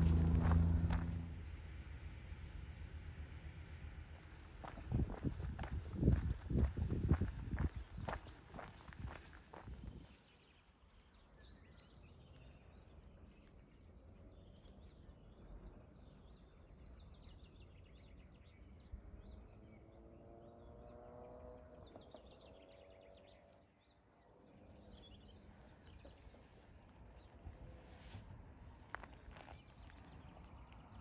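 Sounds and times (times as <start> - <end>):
low rumble: 0.0 - 9.2.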